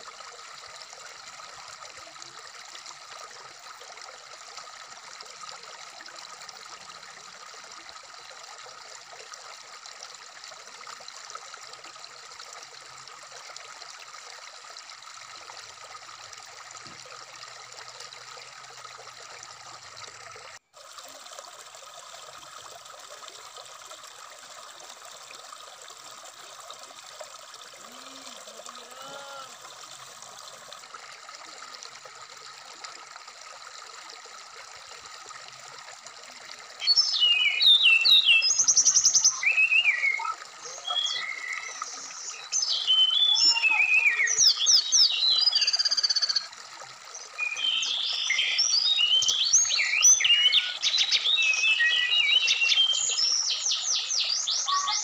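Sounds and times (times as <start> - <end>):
stream flowing over rocks: 0.0 - 55.0
bird song chirping: 36.8 - 46.4, 47.2 - 55.0.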